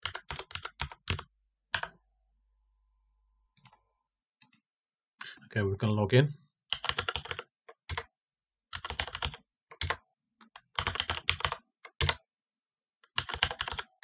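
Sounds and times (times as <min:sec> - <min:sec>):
computer keyboard typing: 0:00.0 - 0:02.0, 0:06.7 - 0:08.1, 0:08.7 - 0:12.2, 0:13.0 - 0:14.0.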